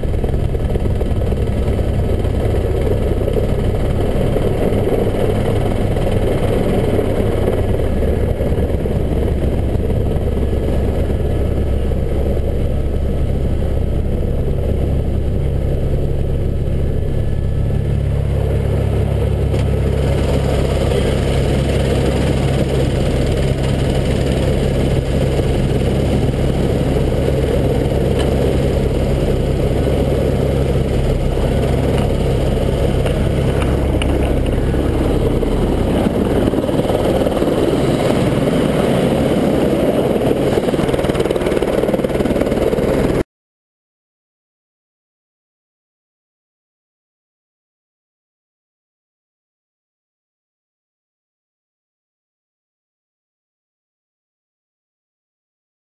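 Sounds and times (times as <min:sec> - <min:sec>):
helicopter engine and rotor hum: 0:00.0 - 0:43.3.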